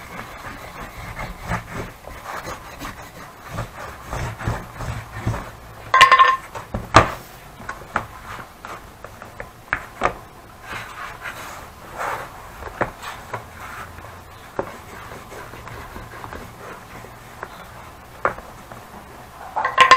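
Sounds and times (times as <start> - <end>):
hands rubbing leather: 0.0 - 5.6, 10.7 - 18.0
knocks and taps of tools: 5.2 - 8.1, 18.2 - 18.8.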